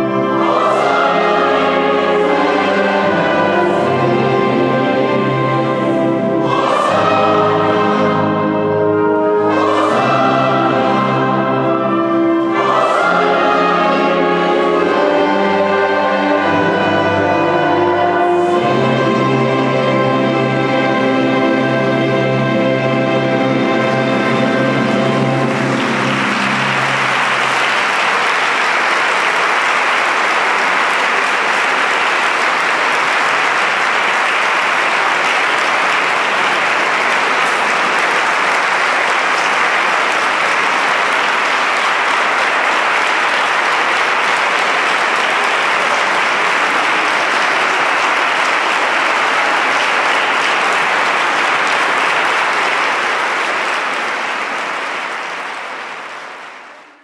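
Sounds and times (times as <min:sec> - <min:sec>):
audience applauding: 0:23.4 - 0:57.0.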